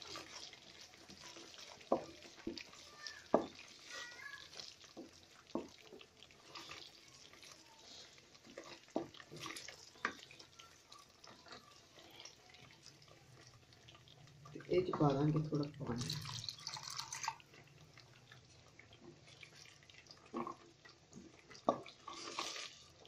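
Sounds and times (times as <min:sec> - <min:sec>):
gravy bubbling in a pan: 0:00.0 - 0:23.0
spatula stirring: 0:00.0 - 0:23.0
spatula knocking on pan: 0:01.8 - 0:03.6.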